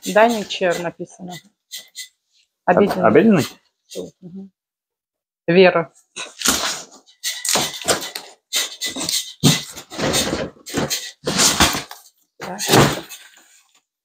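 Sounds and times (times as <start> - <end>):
cardboard box rustling and scraping: 9.4 - 11.9.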